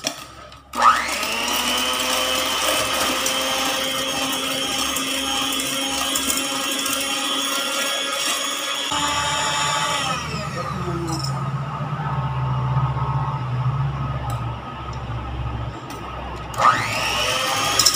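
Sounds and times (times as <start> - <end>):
electric hand mixer whining: 0.7 - 17.9.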